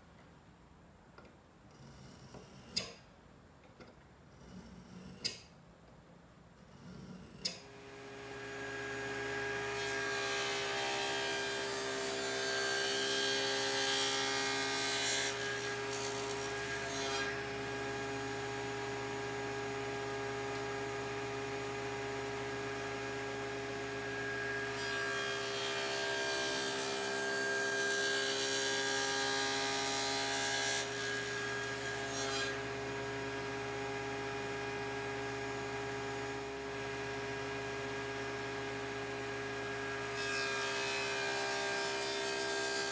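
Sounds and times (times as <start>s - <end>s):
saw blade cutting wood: 1.7s - 3.0s, 4.3s - 5.5s, 6.6s - 20.9s, 24.0s - 32.9s.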